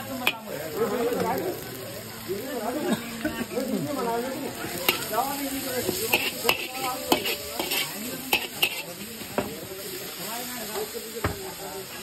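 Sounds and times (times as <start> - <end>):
food sizzling: 0.0 - 12.0
spatula scraping and knocking wok: 4.3 - 12.0.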